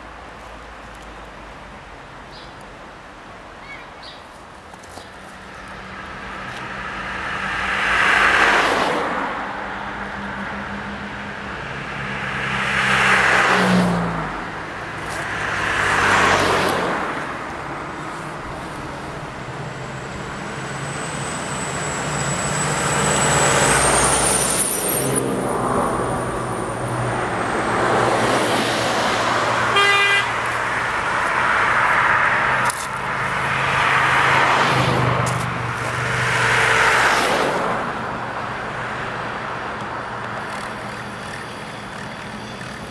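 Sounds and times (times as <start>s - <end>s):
cars and truck driving past: 5.2s - 42.9s
faint high whine: 19.3s - 25.1s
vehicle horn toot: 29.7s - 30.4s.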